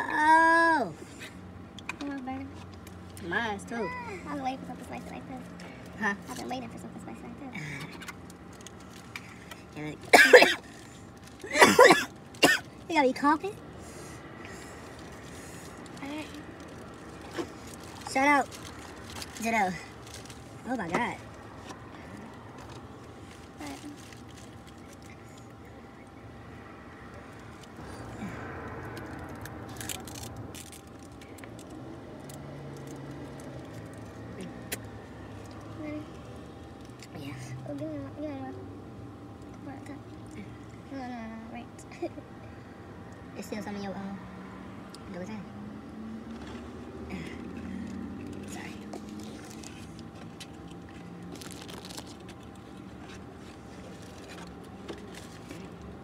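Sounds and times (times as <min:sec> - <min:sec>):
low car hum: 0:00.0 - 0:56.0
chewing and crunching fried chicken: 0:14.2 - 0:20.6, 0:21.3 - 0:25.6, 0:27.4 - 0:35.7, 0:46.3 - 0:56.0
paper wrappers crackling: 0:14.8 - 0:25.5, 0:28.9 - 0:34.0, 0:48.2 - 0:55.9.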